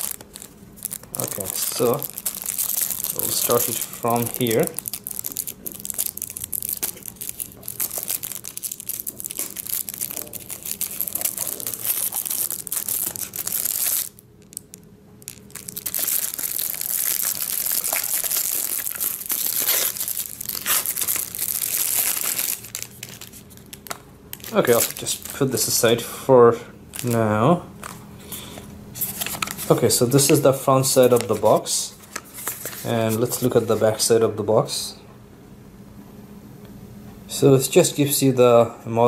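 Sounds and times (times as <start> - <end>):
plastic shrink wrap crinkling: 0.0 - 26.0, 26.9 - 28.0, 29.0 - 33.8.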